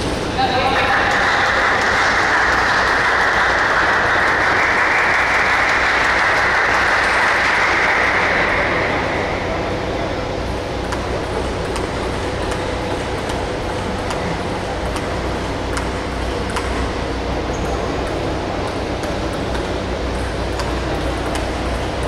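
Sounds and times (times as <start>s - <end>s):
spectators applauding: 0.5s - 9.9s.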